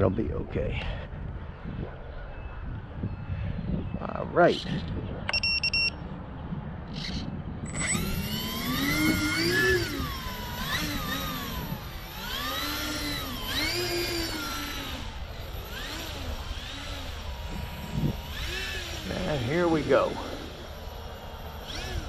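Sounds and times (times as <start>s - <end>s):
electric motors whining: 6.8s - 22.0s
steady thin high whine: 7.0s - 22.0s.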